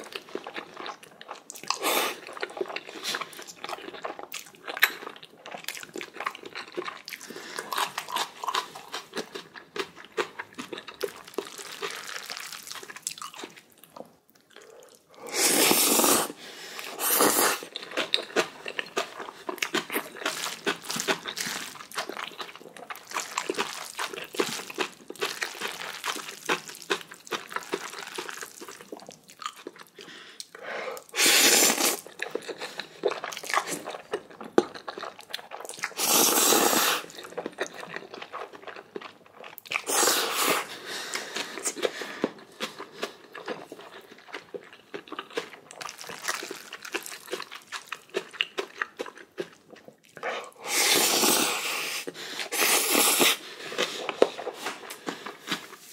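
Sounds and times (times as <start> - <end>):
chewing and crunching: 0.0 - 15.3, 16.8 - 55.9
slurping noodles: 14.6 - 17.7, 31.0 - 32.9, 35.8 - 37.3, 39.8 - 42.0, 50.2 - 55.9.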